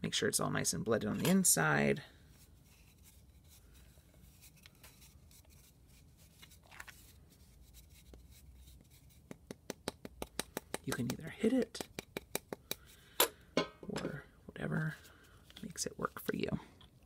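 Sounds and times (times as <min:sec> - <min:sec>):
clay rubbing: 0:01.1 - 0:14.2.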